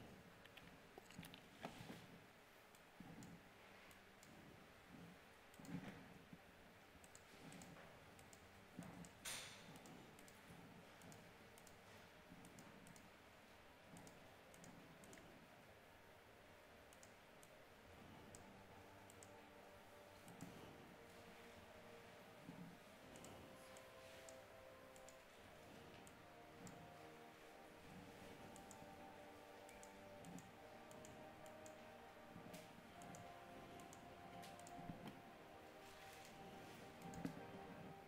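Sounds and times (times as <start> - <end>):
faint computer clicks: 32.5 - 35.2.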